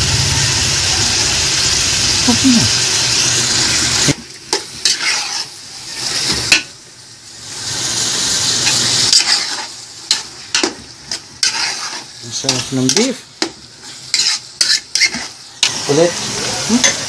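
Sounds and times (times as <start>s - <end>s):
meat sizzling in a pot: 0.0s - 17.0s
spatula scraping a pot: 4.8s - 6.1s, 9.1s - 9.7s, 11.4s - 13.1s, 13.8s - 15.4s.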